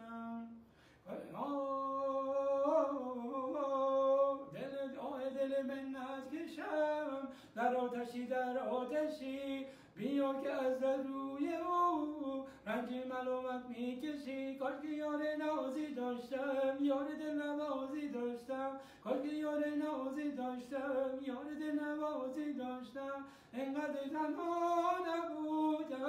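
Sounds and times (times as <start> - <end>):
man singing unaccompanied: 0.0 - 26.0.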